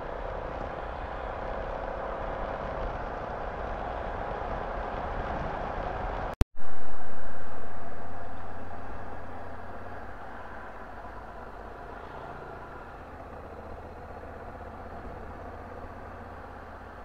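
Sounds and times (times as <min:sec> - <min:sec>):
road noise: 0:00.0 - 0:17.0.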